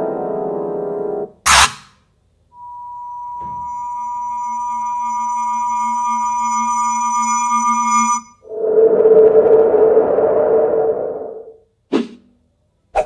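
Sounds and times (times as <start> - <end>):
synthesized saw tone: 2.6 - 10.1.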